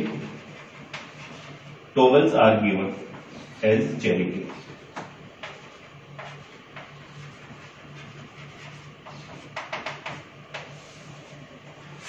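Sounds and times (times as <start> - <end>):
chalk tapping on chalkboard: 0.0 - 1.6, 4.4 - 11.1
low steady hum: 0.0 - 12.0.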